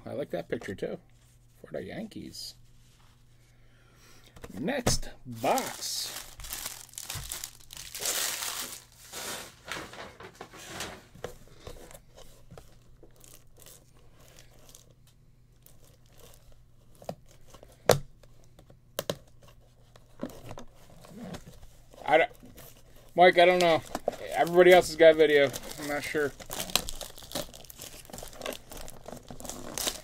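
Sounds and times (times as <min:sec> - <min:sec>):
plastic shrink wrap crinkling: 0:05.3 - 0:10.8, 0:12.6 - 0:15.0, 0:15.6 - 0:17.4, 0:22.1 - 0:30.0.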